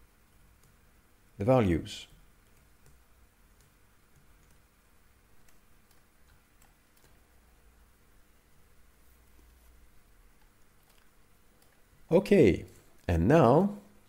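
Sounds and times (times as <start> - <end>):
mouse and keyboard clicks: 10.4 - 11.8.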